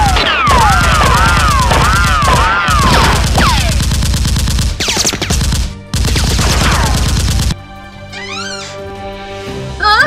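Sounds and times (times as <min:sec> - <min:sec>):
automatic gunfire: 0:00.0 - 0:07.6.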